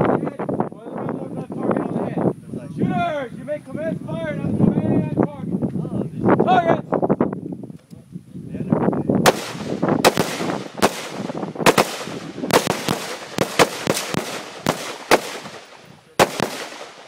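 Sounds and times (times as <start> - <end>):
rifle shots: 9.2 - 17.0.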